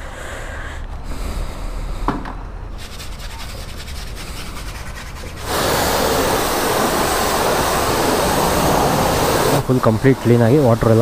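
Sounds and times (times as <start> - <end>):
sponge scrubbing foam: 2.8 - 11.0
pressure washer spray hiss: 5.4 - 11.0.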